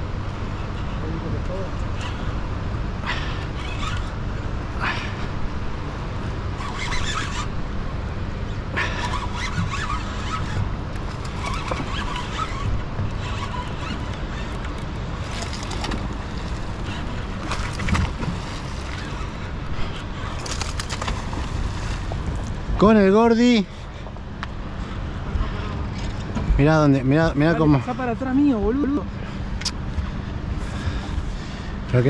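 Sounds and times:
wind rumbling on microphone: 3.6s - 23.6s.

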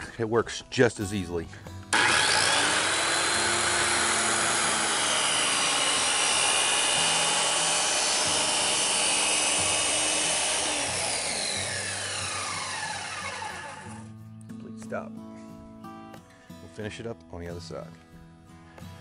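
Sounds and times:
circular saw cutting plastic: 2.0s - 14.1s.

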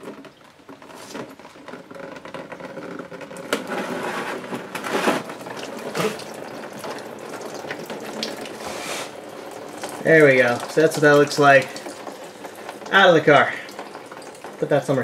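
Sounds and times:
coolant splashing into drain pan: 0.0s - 15.0s.

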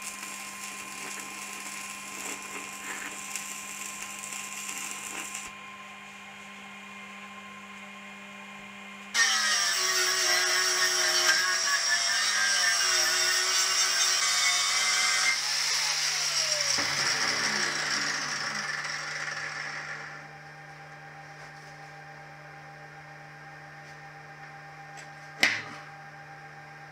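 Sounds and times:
angle grinder grinding steel: 0.0s - 5.5s, 9.2s - 20.2s.

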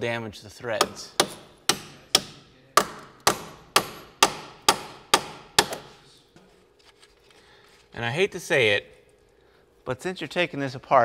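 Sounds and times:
hammer striking metal nuts: 0.8s - 6.0s.

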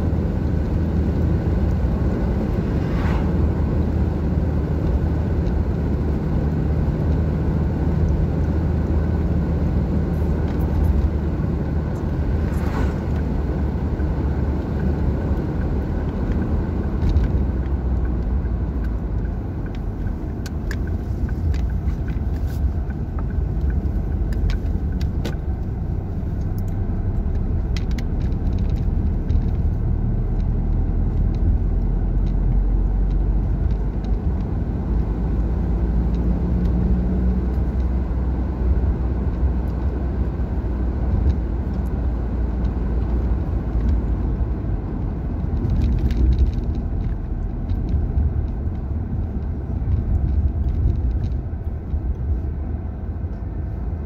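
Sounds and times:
car engine and tyres rumble: 0.0s - 54.0s.

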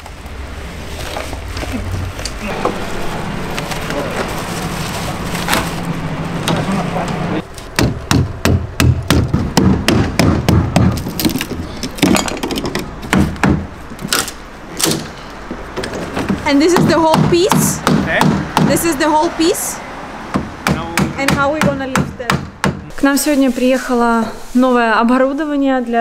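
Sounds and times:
steady low hum: 0.0s - 11.9s
wooden crate knocking and clacking: 7.7s - 18.8s.

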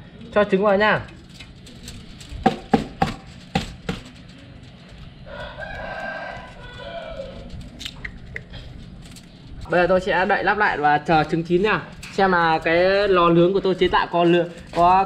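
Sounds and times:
rooster crowing: 5.2s - 7.7s.

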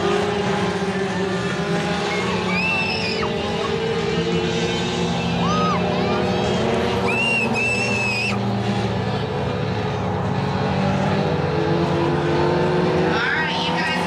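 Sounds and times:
race car engine at speed: 0.0s - 14.0s
high whistle-like squeal: 2.1s - 3.3s, 7.0s - 8.4s.

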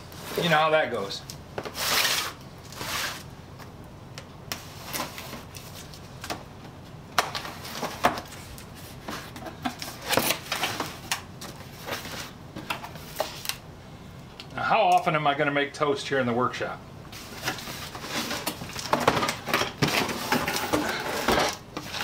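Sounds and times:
cardboard flaps scraping and rustling: 1.6s - 3.3s, 7.3s - 13.5s, 17.1s - 22.0s.

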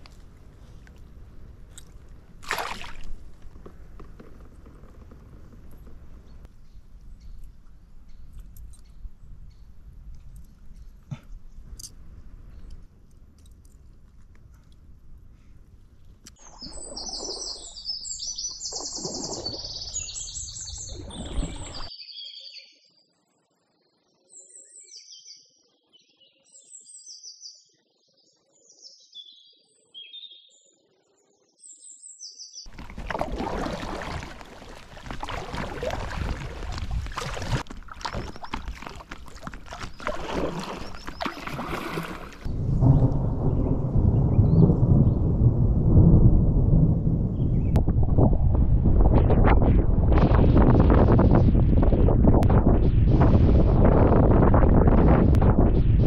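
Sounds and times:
small birds chirping: 38.1s - 41.6s
deep thunder rumble: 42.5s - 56.0s
rushing storm noise: 42.5s - 56.0s.

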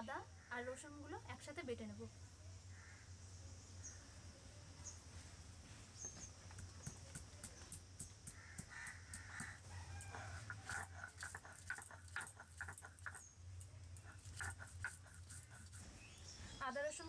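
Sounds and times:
hen clucking: 8.6s - 13.2s, 14.0s - 15.8s.

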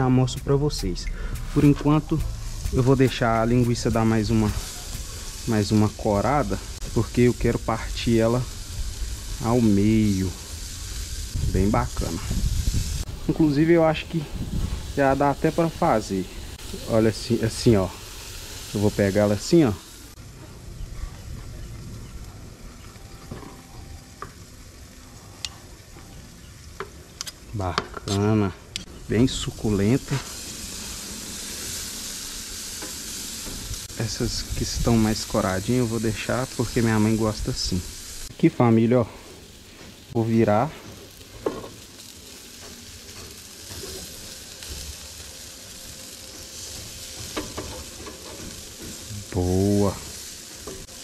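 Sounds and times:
sausages sizzling on a grill: 0.0s - 51.0s
metal fork turning sausages: 39.3s - 51.0s.

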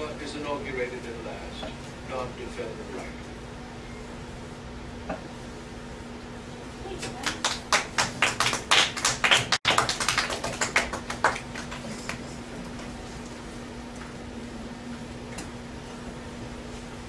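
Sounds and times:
steady low hum: 0.0s - 17.0s
children clapping: 7.0s - 12.3s.

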